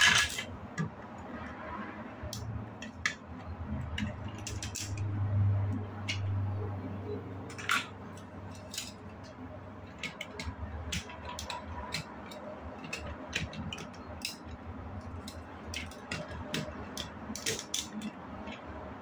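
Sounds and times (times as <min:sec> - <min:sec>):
low steady hum: 0:00.0 - 0:19.0
plastic bricks clicking: 0:09.9 - 0:18.7.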